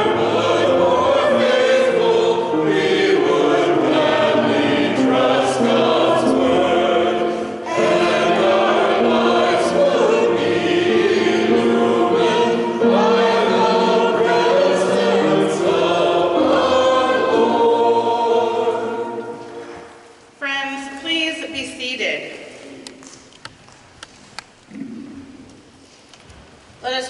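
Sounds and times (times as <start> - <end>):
choir singing a hymn: 0.0 - 20.2.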